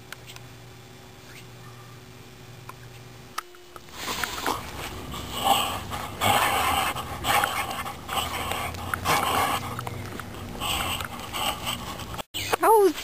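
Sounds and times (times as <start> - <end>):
large dog panting: 4.2 - 12.2.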